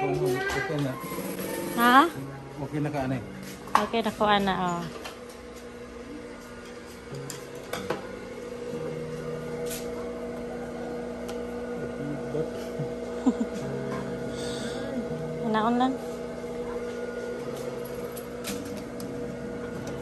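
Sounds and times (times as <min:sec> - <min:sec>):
sewing machine motor hum: 0:00.8 - 0:02.2.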